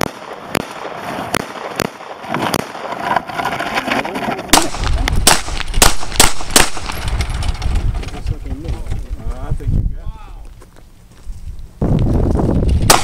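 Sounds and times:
pistol shots: 0:00.0 - 0:02.8, 0:04.5 - 0:07.0.

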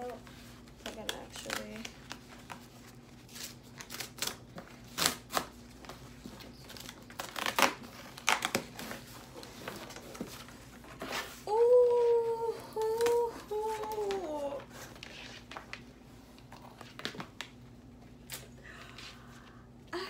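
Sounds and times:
cardboard tearing: 0:03.3 - 0:05.6, 0:06.6 - 0:10.2
woman humming excitedly: 0:11.5 - 0:14.6.

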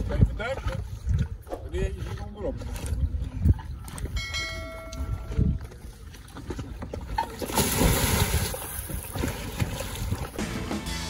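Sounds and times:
wind rumble on microphone: 0:00.0 - 0:07.2
churning water: 0:00.0 - 0:10.9
loud splash into water: 0:07.3 - 0:10.4.

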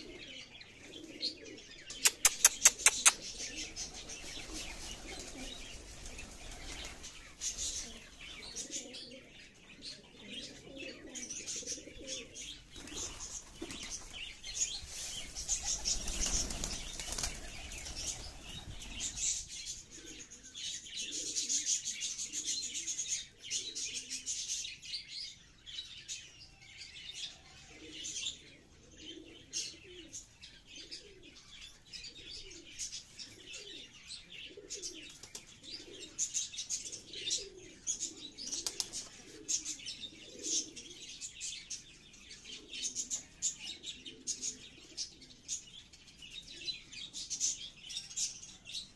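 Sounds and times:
pigeons cooing: 0:00.0 - 0:48.9
beaks pecking on concrete: 0:01.9 - 0:09.2
pigeon wing flaps: 0:04.0 - 0:07.2, 0:15.3 - 0:18.4, 0:38.6 - 0:39.0.

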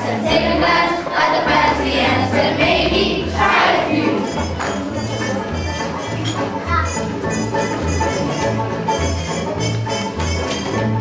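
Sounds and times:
children singing: 0:00.0 - 0:04.6
backing track with bass: 0:00.0 - 0:11.0.

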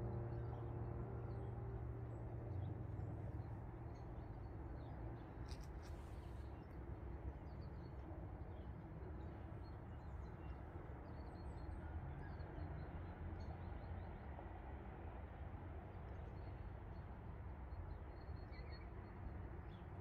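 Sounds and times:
steady low rumble: 0:00.0 - 0:06.5.

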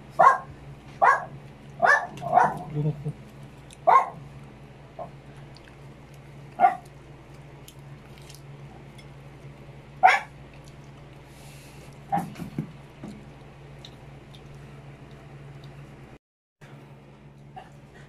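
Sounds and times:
dog barking: 0:00.2 - 0:02.7, 0:03.8 - 0:04.2, 0:06.6 - 0:06.9, 0:10.0 - 0:10.3.

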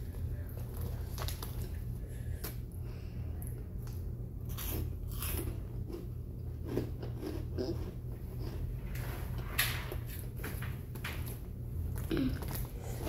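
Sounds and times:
steady low hum: 0:00.0 - 0:13.0
chips being chewed crunching: 0:04.4 - 0:09.1.

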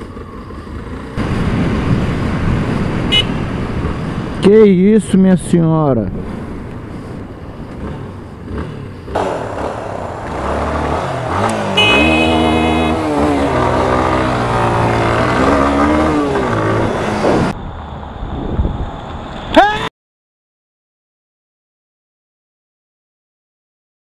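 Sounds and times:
motorcycle engine revving: 0:00.0 - 0:04.4, 0:06.2 - 0:17.6
wind and road noise: 0:00.0 - 0:19.9.

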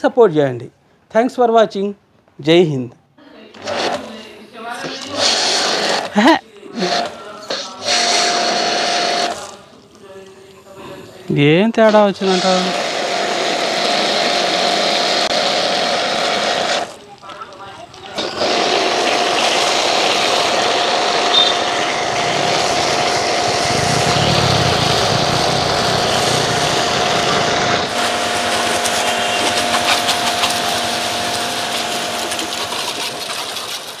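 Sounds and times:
pressure washer spraying foam: 0:04.8 - 0:09.7, 0:11.8 - 0:34.0
low hum: 0:18.0 - 0:33.7.

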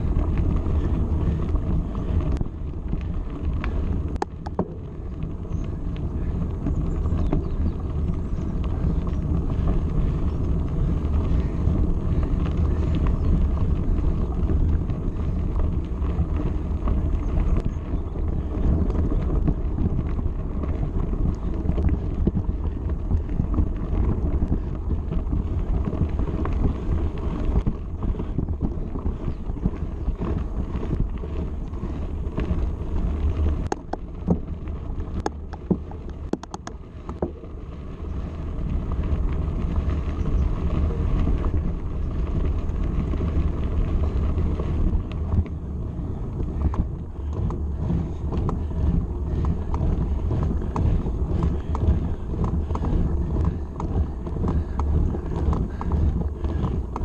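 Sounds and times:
bike tyres on gravel: 0:00.0 - 0:57.0
wind buffeting microphone: 0:00.0 - 0:57.0
sharp clicks: 0:35.2 - 0:37.2.

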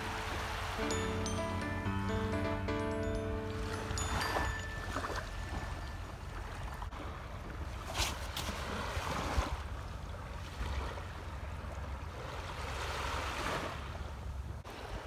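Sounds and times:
waves washing onto sand: 0:00.0 - 0:01.2, 0:06.6 - 0:09.7.

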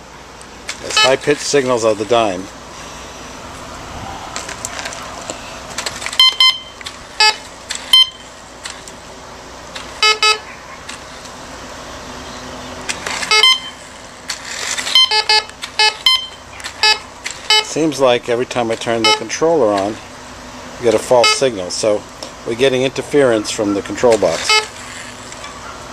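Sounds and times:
metal detector beeps: 0:00.9 - 0:01.2, 0:06.2 - 0:08.3, 0:10.0 - 0:10.5, 0:13.3 - 0:13.8, 0:14.9 - 0:17.8, 0:19.0 - 0:19.4, 0:21.2 - 0:21.5, 0:24.3 - 0:24.8.

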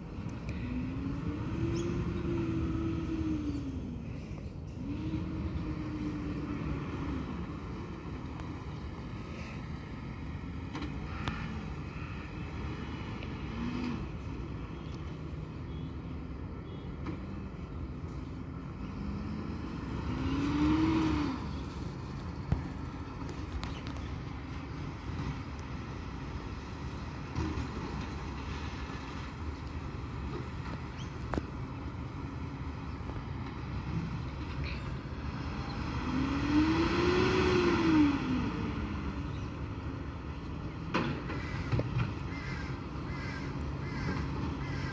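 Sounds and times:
garbage truck diesel engine revving: 0:04.7 - 0:08.8, 0:18.8 - 0:22.9, 0:33.7 - 0:41.2.

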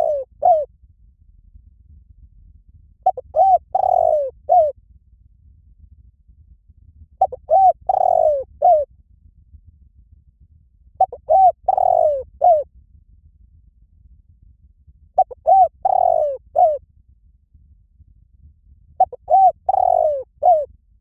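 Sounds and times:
dove cooing: 0:00.0 - 0:00.7, 0:03.0 - 0:04.7, 0:07.2 - 0:08.9, 0:11.0 - 0:12.6, 0:15.2 - 0:16.8, 0:19.0 - 0:20.7.

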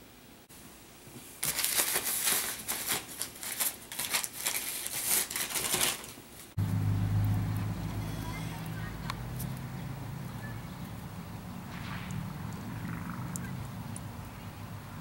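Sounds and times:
paper crinkling and rustling: 0:01.4 - 0:06.6
low steady hum: 0:06.6 - 0:15.0.

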